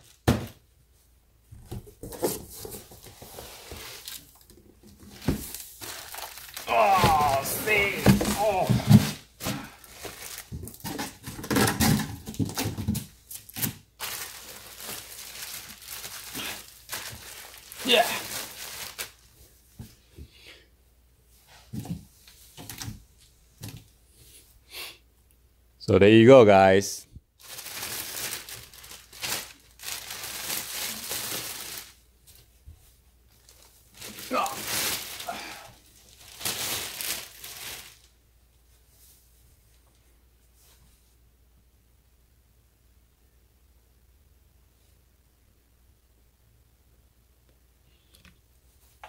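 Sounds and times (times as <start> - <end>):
plastic bag crinkling: 3.6 - 19.3, 27.4 - 32.0, 33.3 - 38.1.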